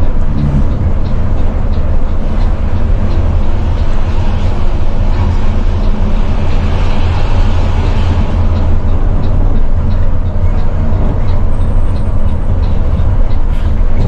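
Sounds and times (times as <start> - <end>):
bus engine droning: 0.0 - 14.0
road noise: 0.0 - 14.0
wind noise: 0.0 - 14.0.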